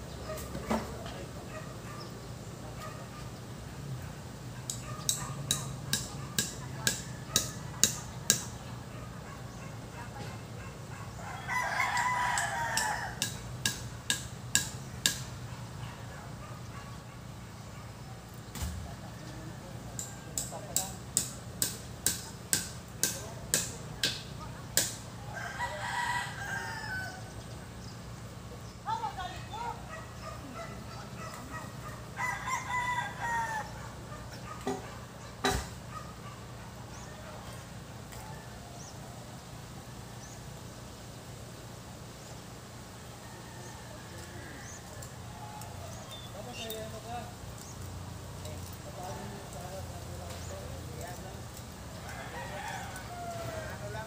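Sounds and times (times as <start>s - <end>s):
rooster crowing: 11.2s - 13.5s, 25.2s - 27.4s, 32.0s - 34.0s, 43.0s - 46.1s, 51.9s - 54.0s
chopping strikes on wood: 20.4s - 25.0s.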